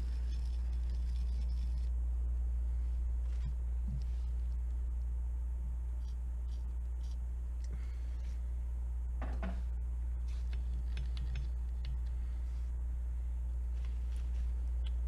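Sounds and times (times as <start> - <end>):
low hum: 0.0 - 15.0
knock: 9.2 - 9.6.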